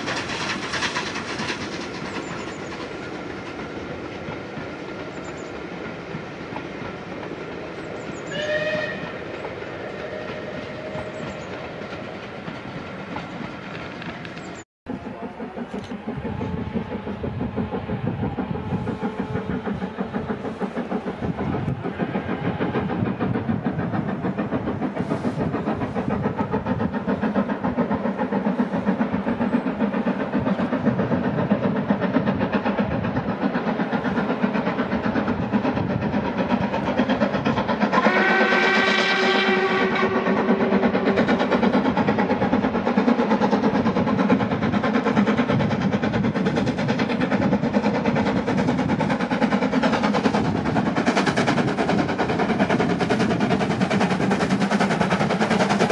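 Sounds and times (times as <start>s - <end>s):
steam locomotive exhaust beats: 0.0s - 55.9s
train coaches rattling over rails: 0.0s - 55.9s
steam train whistle: 8.3s - 9.3s, 37.9s - 41.1s.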